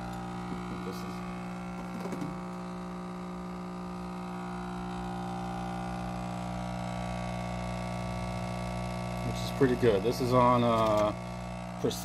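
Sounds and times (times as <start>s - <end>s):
small air pump humming: 0.0s - 12.0s.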